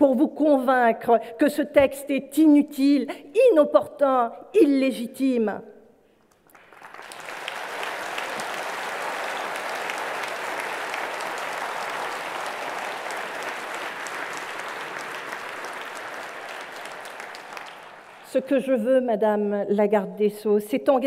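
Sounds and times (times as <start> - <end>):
large audience applauding: 6.3 - 18.3.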